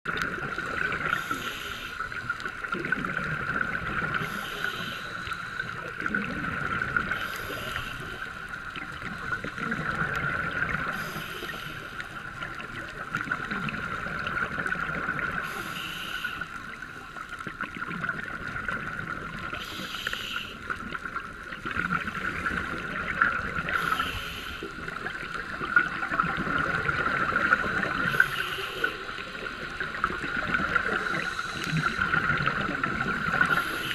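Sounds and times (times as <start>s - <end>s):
exhale bubbling underwater: 0.1s - 33.9s
scuba regulator hiss: 1.1s - 2.0s, 4.2s - 5.5s, 7.2s - 8.2s, 10.9s - 12.0s, 15.4s - 16.4s, 19.6s - 20.6s, 23.8s - 24.7s, 28.0s - 29.3s, 31.0s - 32.1s, 33.4s - 33.9s.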